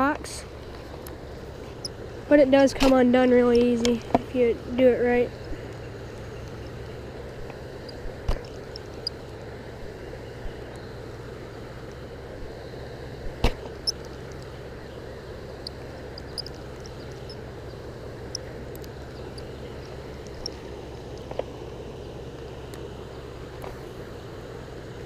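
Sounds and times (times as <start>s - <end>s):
low motor hum: 0.0s - 25.0s
faint clicks: 15.6s - 21.5s.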